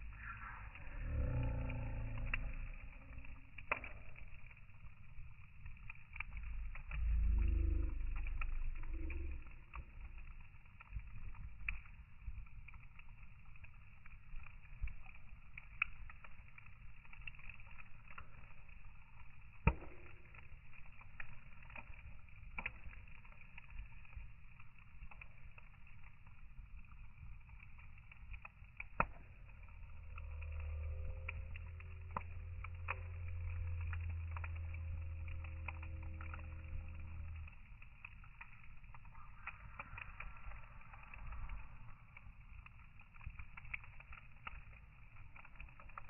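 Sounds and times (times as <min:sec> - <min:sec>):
wood fire crackling: 0:00.0 - 0:46.0.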